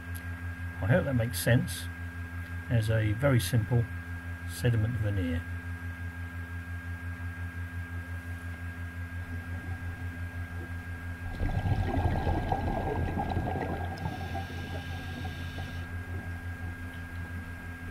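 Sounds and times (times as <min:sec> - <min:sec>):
low pulsing hum: 0:07.2 - 0:17.9
diver's bubbles gurgling underwater: 0:11.2 - 0:17.4.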